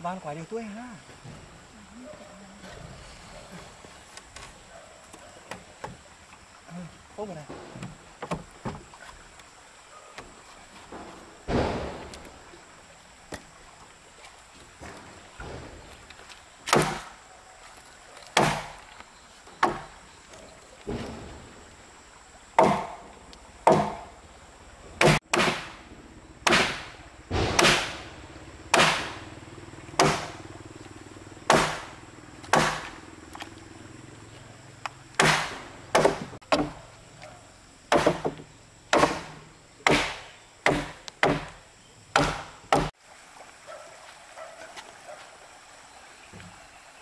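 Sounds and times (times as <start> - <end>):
chopping blows on timber: 11.5 - 12.3, 16.6 - 17.1, 18.4 - 18.8, 19.6 - 19.9, 22.6 - 23.0, 23.6 - 24.1, 25.0 - 25.8, 26.4 - 28.1, 28.7 - 29.2, 30.0 - 30.4, 31.5 - 33.0, 35.2 - 36.8, 37.9 - 42.9.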